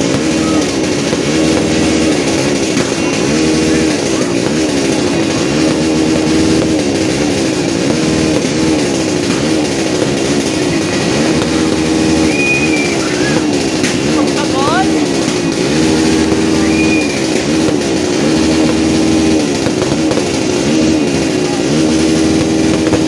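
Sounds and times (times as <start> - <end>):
engine revving: 0.0 - 23.0
high whistle: 12.0 - 13.5, 16.4 - 17.4.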